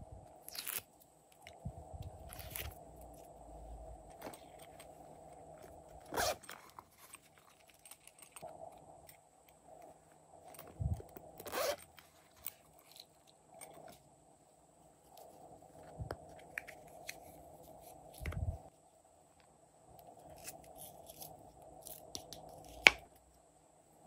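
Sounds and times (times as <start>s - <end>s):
zipper pulled open: 0.5s - 0.9s, 2.3s - 2.8s, 6.0s - 7.2s, 11.4s - 12.5s.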